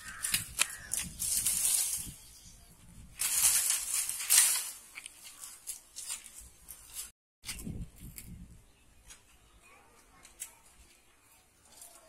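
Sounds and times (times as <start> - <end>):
sharp snaps of stems: 0.0 - 2.0
bamboo rustling and crackling: 0.0 - 12.0.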